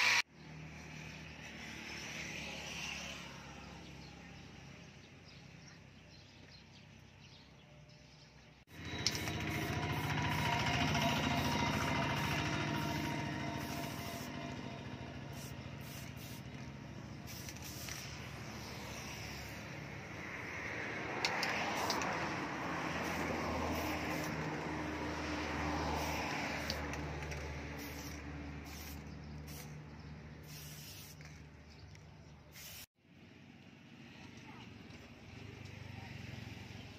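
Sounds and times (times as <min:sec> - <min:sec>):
sharp clicks: 0:21.2 - 0:22.2.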